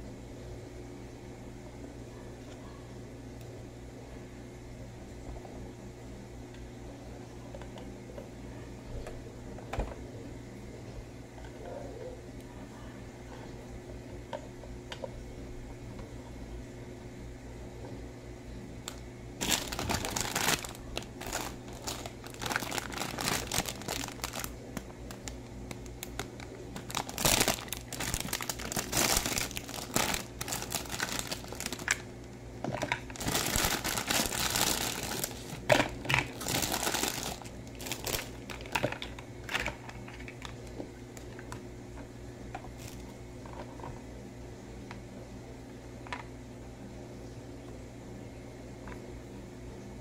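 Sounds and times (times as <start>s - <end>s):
cellophane bags crinkling: 19.4s - 32.1s, 32.7s - 41.5s, 42.8s - 43.1s.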